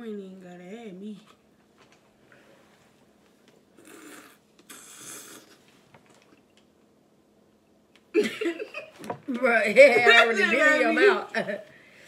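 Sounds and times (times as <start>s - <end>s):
breathy mouth and nose noises: 3.8s - 5.7s.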